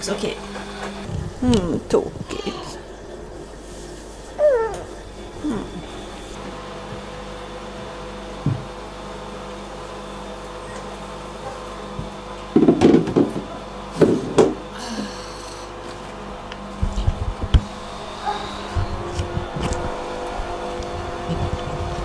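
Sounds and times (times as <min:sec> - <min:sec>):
steady hum: 0:00.0 - 0:09.2, 0:14.2 - 0:22.0.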